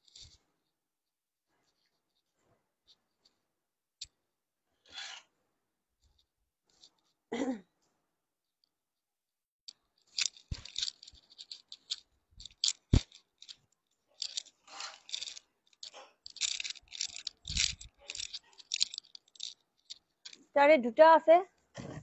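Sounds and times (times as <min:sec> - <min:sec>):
rustling and crinkling: 0:09.7 - 0:20.7.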